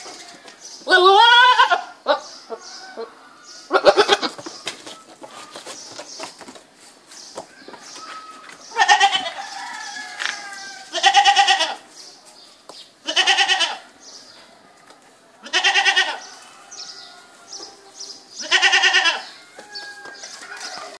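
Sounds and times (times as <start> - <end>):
goats bleating: 0.0 - 2.2, 3.7 - 4.4, 7.8 - 9.4, 10.1 - 11.9, 13.0 - 13.9, 15.4 - 17.6, 18.4 - 21.0.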